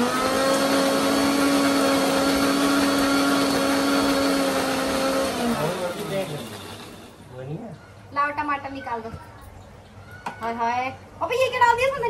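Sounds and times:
electric mixer grinder running: 0.0s - 7.2s.

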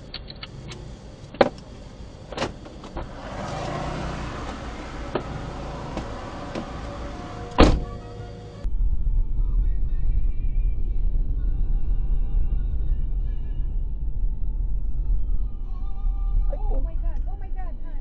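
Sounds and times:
car cabin rumble: 0.0s - 8.7s.

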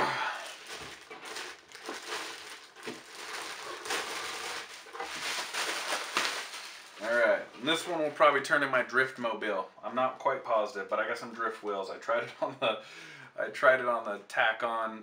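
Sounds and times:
plastic bag crinkling: 0.2s - 7.8s.

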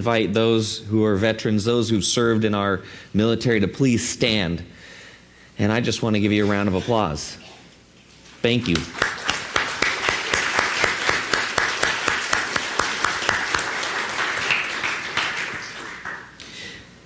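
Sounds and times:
person clapping steadily: 8.6s - 16.5s
crowd applauding: 8.7s - 16.4s.

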